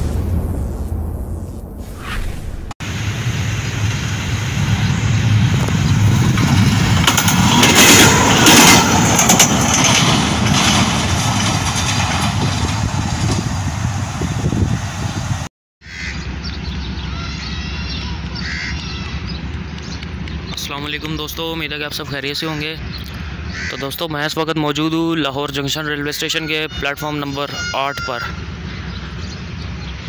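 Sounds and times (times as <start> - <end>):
diesel locomotive rumbling past: 2.8 - 30.0
clattering train wheels: 5.5 - 13.9.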